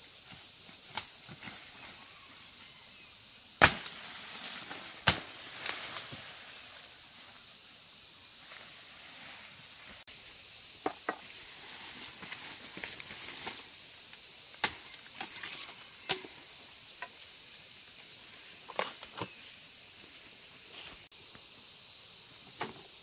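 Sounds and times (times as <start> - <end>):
insects chorus: 0.0 - 23.0
machete chopping sugar cane: 3.6 - 4.0, 5.0 - 5.4.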